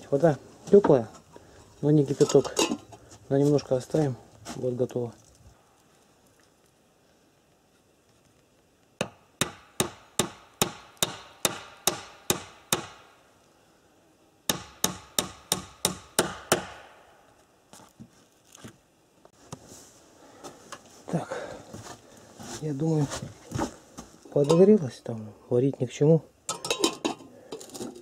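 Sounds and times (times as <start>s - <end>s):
hammer driving nails into wood: 9.0s - 13.1s, 14.5s - 17.0s.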